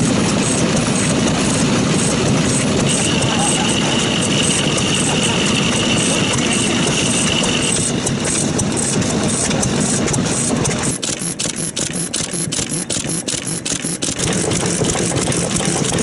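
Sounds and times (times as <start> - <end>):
farm engines clattering: 0.0 - 16.0
steady high whine: 0.0 - 16.0
sharp even clicking: 10.6 - 16.0.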